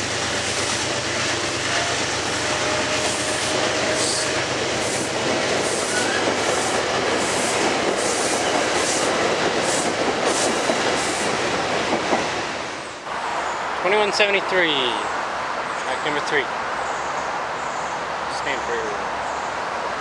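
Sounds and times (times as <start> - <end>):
rhythmic rail clatter: 0.0 - 14.4
train rolling past: 0.0 - 16.5.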